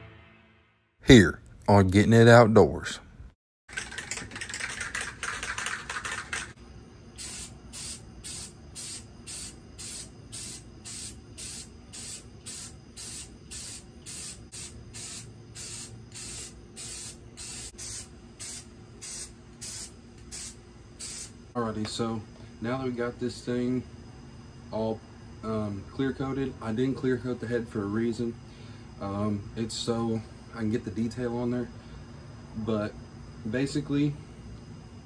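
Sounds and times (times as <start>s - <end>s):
night insects chirping: 3.8s - 35.0s
aerosol can spraying: 7.2s - 21.4s.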